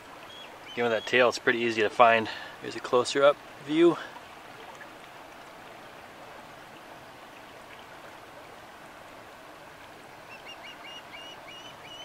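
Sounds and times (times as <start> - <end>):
outdoor background hiss: 0.0 - 12.0
bird chirping: 0.3 - 1.1, 10.3 - 12.0.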